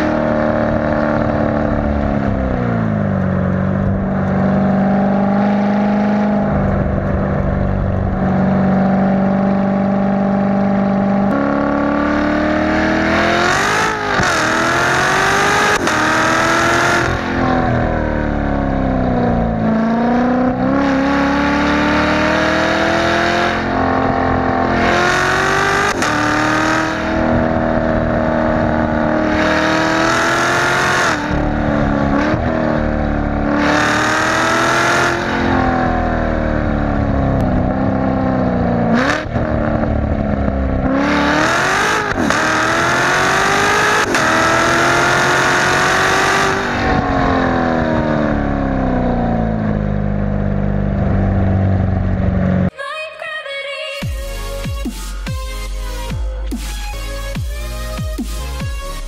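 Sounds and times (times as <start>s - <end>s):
car engine accelerating with upshifts: 0.0s - 52.7s.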